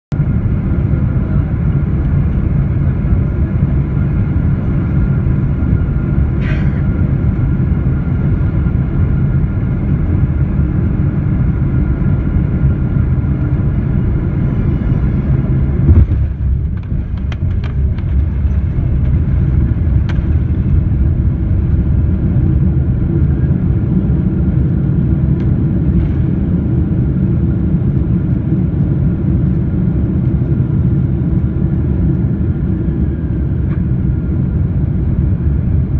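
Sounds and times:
jet airliner cabin rumble: 0.1 - 35.9
sharp clicks and rattles: 16.0 - 19.4.

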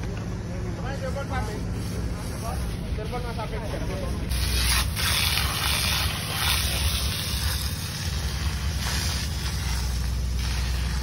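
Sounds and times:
steady low rumble: 0.0 - 11.0
fire hose water jet hissing: 4.3 - 11.0.

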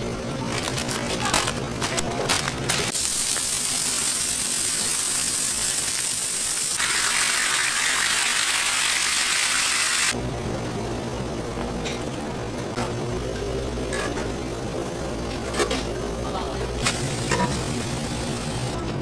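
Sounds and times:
bacon sizzling on a griddle: 2.9 - 10.1.

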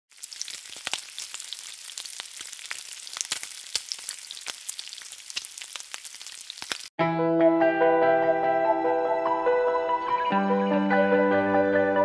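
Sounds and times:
crackling sizzle with pops: 0.1 - 6.9.

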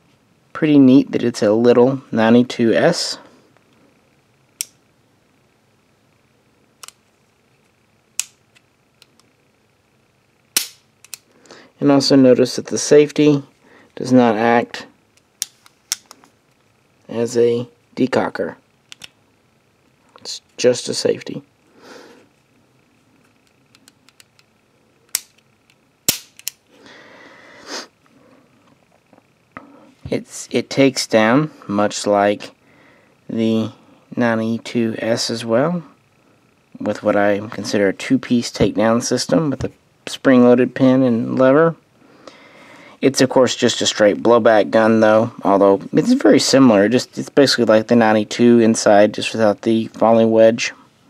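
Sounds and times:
pistol metal clicks: 8.2 - 9.3, 10.6 - 11.2, 25.1 - 26.6.

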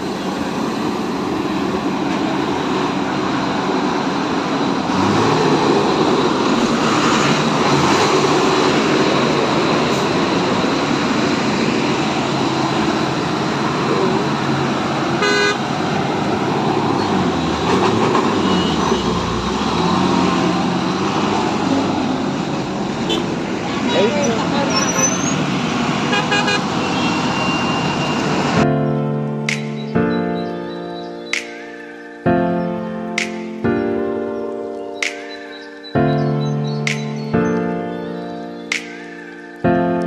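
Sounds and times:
heavy road traffic engines: 0.0 - 40.0
vehicle horns honking: 15.2 - 15.7, 18.2 - 19.4, 23.0 - 25.4, 26.0 - 28.6.

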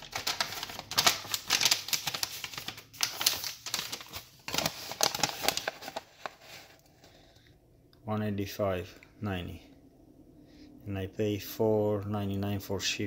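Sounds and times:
paper rustling and crinkling: 0.0 - 7.1.

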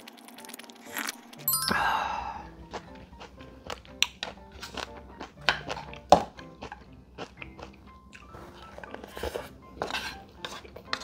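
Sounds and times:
background music: 0.3 - 11.0
chewing: 2.6 - 11.0.

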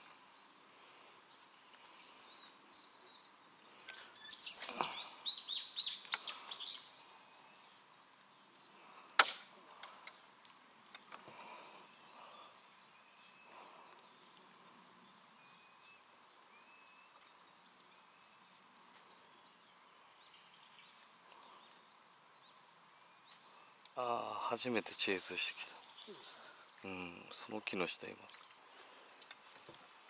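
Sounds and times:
faint bird chirps: 0.0 - 9.0, 10.9 - 28.6
sharp click: 9.2 - 10.2.

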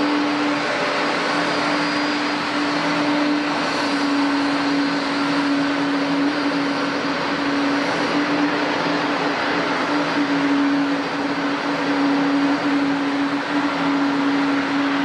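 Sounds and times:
jet engines running: 0.0 - 15.0.

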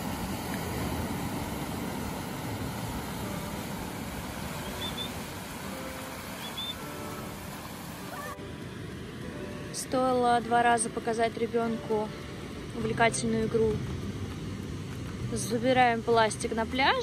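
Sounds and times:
ocean surf breaking: 0.0 - 14.6
high chirps: 4.5 - 7.2.

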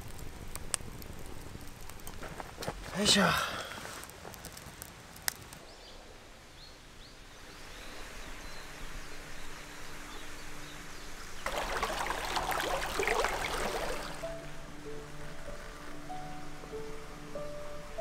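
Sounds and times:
campfire crackle: 0.0 - 18.0
outdoor hiss: 0.0 - 18.0
soft music tones: 7.6 - 18.0
stream flowing over rocks: 11.4 - 14.5.

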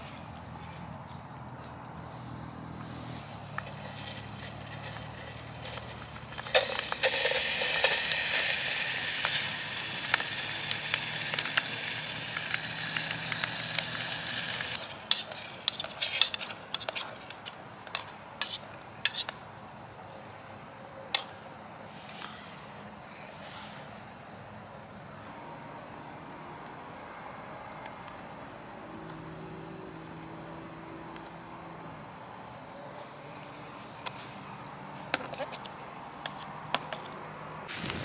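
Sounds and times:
food sizzling in a metal pot: 2.3 - 16.4.

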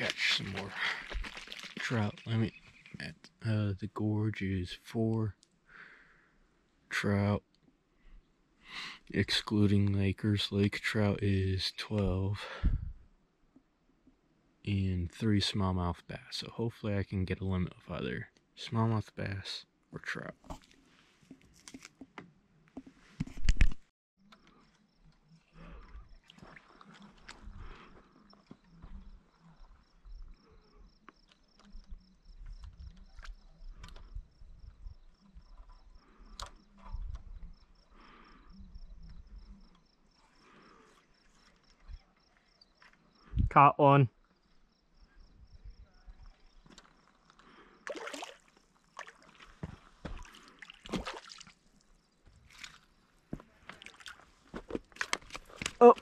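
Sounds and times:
low wind rumble on microphone: 12.6 - 13.0
fish splashing at surface: 47.9 - 49.4, 50.2 - 51.6.

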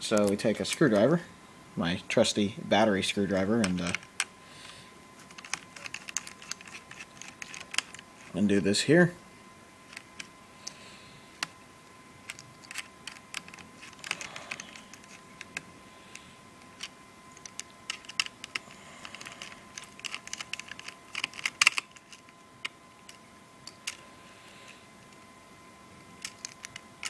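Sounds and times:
screwdriver clicking on metal screws: 5.3 - 8.0, 16.8 - 22.2.

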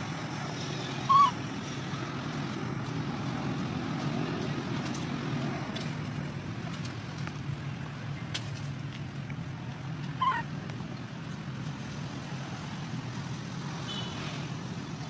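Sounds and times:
baby monkey squealing: 1.0 - 1.5, 10.2 - 10.5.

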